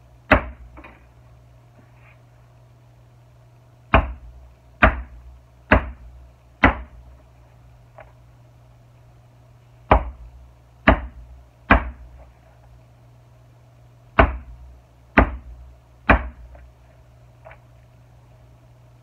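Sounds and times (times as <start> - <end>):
mallet knocking leather punch: 0.3 - 0.7, 3.9 - 7.0, 9.9 - 10.2, 10.8 - 12.0, 14.2 - 14.6, 15.2 - 15.5, 16.1 - 16.5.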